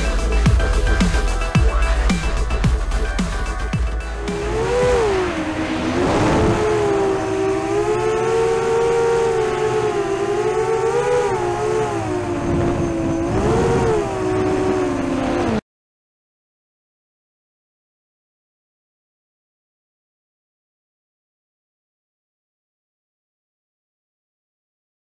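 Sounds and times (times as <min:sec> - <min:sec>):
drone motors whining: 0:00.0 - 0:15.6.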